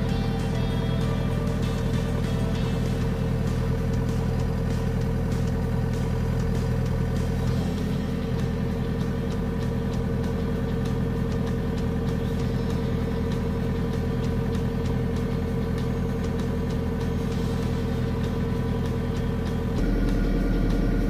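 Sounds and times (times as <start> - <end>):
diesel engine running: 0.0 - 21.0
steady tone: 19.8 - 21.0.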